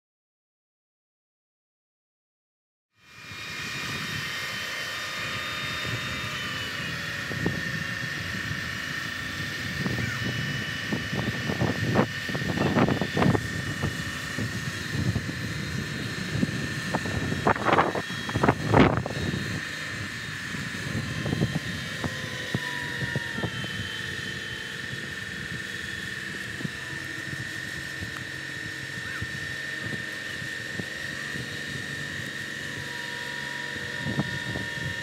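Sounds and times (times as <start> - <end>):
crane engine running: 3.0 - 35.0
high whine: 3.0 - 35.0
wind buffeting microphone: 7.0 - 32.1, 33.7 - 35.0.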